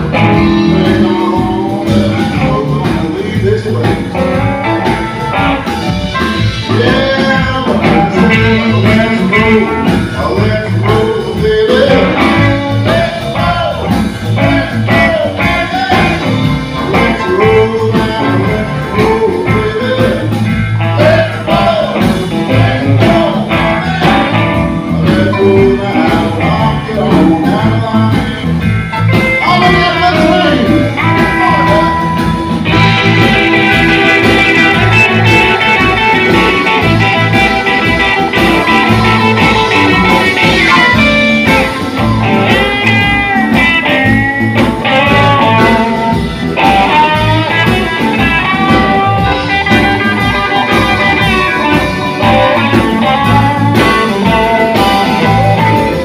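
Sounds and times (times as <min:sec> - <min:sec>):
blues rock band playing: 0:00.0 - 0:56.0
man singing: 0:00.0 - 0:56.0
electric guitar solo: 0:04.1 - 0:10.0, 0:28.7 - 0:56.0.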